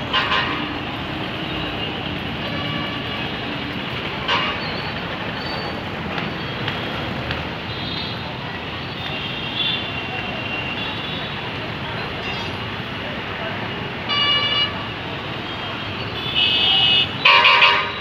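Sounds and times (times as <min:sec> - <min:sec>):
motorbikes passing: 0:00.0 - 0:09.1
bus engines running: 0:00.0 - 0:18.0.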